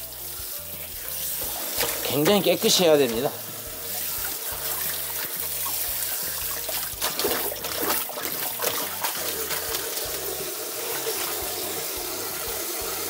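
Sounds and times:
leaves splashing in water: 4.3 - 11.4.

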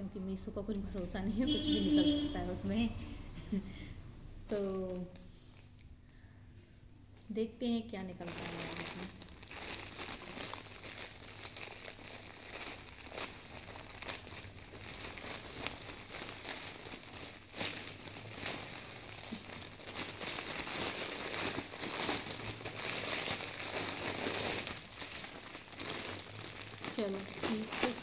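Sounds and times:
plastic mailer bag crinkling: 8.0 - 28.0.

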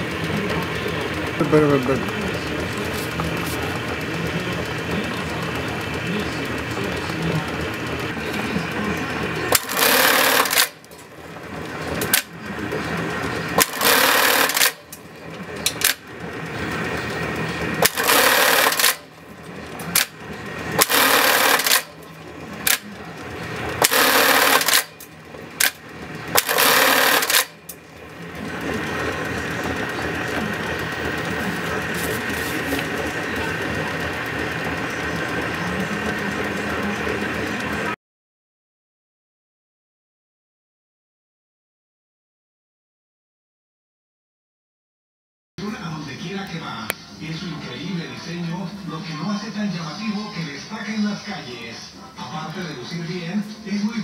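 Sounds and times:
machine clicks: 0.0 - 38.0
motor hum: 0.0 - 38.0
sewing machine stitching: 0.0 - 38.0.

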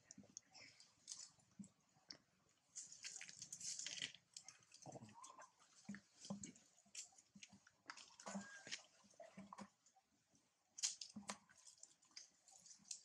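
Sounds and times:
rustling on dry leaves: 2.8 - 4.2.

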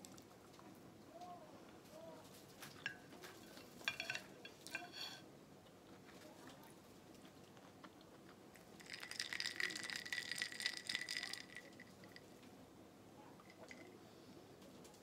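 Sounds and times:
ice cubes clinking in glass: 3.8 - 5.2, 8.8 - 12.2.

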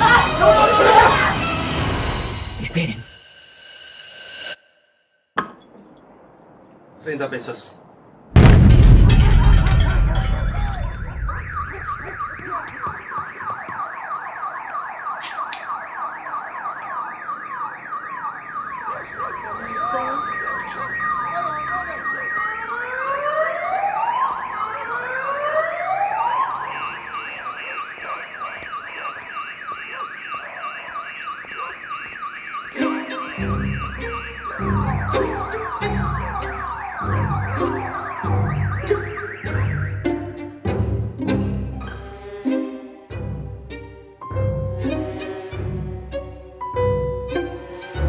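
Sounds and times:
blast rumble: 8.0 - 12.0
car alarms warbling: 9.1 - 41.0.

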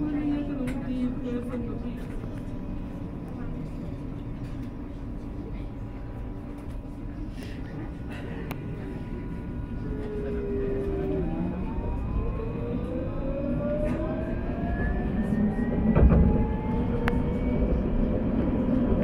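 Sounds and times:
wheels rumbling on rail: 0.0 - 19.0
tram traction motors whining: 7.9 - 19.0.

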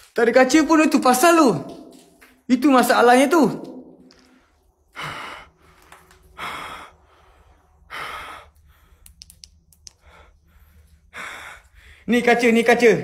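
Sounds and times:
man breathing heavily: 4.2 - 9.2, 9.9 - 12.1.

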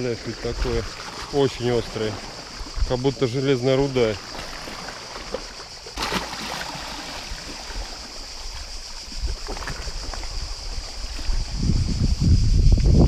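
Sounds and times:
wind buffeting microphone: 0.0 - 4.0, 7.1 - 13.0
waves lapping against rocks: 0.0 - 12.0.

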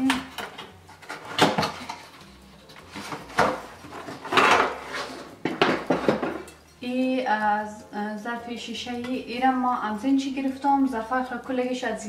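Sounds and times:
cardboard boxes scraping on shelf: 2.8 - 6.2.

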